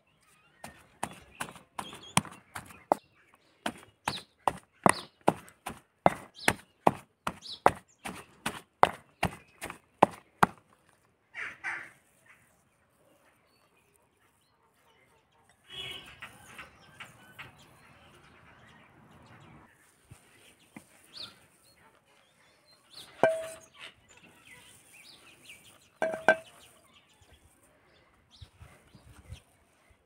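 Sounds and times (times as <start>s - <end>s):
pestle pounding in stone mortar: 1.0s - 3.0s, 3.6s - 10.6s, 23.2s - 23.6s, 26.0s - 26.5s.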